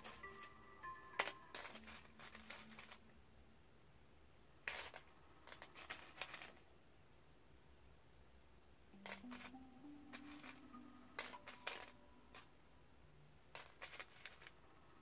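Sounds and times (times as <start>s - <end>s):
plastic pieces clicking and rattling: 0.0s - 0.5s, 1.2s - 3.1s, 4.6s - 6.6s, 9.0s - 12.5s, 13.5s - 14.6s.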